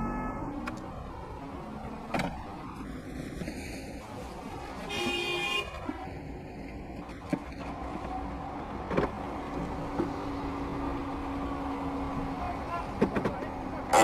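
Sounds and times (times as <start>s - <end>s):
car horn honk: 0.0s - 0.7s, 4.9s - 5.8s
traffic and engine noise: 0.0s - 14.0s.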